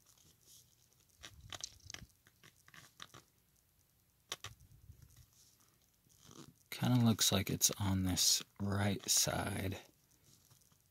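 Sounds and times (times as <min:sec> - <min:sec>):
plastic calculator clicks and creaks: 0:01.2 - 0:03.3, 0:04.3 - 0:04.6.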